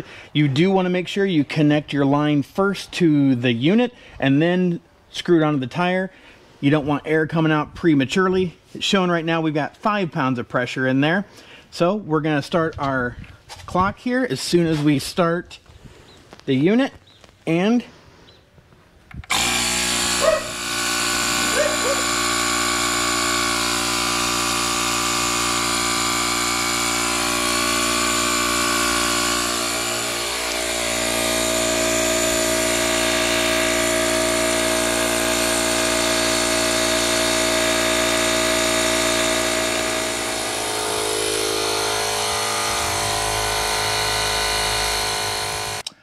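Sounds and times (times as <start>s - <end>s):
tire inflator compressor drone: 0.0s - 0.4s, 19.2s - 46.0s.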